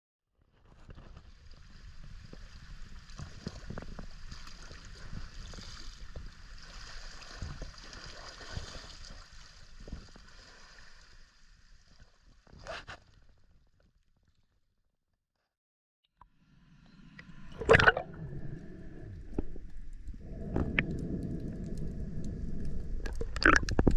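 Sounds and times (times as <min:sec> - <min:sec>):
waves sloshing against rocks: 0:17.2 - 0:23.9
wind on microphone: 0:17.4 - 0:23.9
louder splash: 0:17.5 - 0:18.1.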